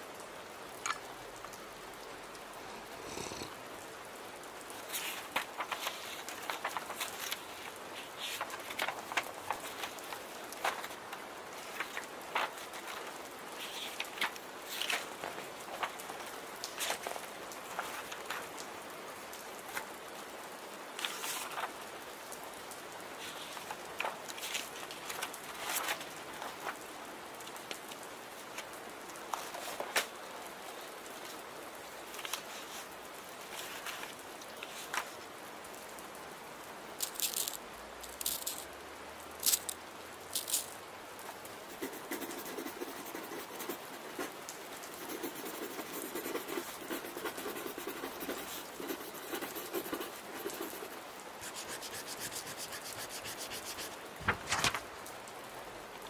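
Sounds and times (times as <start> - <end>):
steady rain: 0.0 - 56.0
pen scraping paper: 41.7 - 44.3, 45.0 - 54.0
pen writing on paper: 41.7 - 44.3, 44.9 - 53.9.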